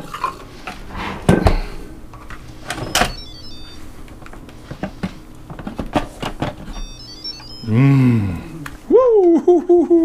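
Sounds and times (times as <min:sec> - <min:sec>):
electronic beeping tune: 0:03.0 - 0:03.9, 0:06.7 - 0:08.3.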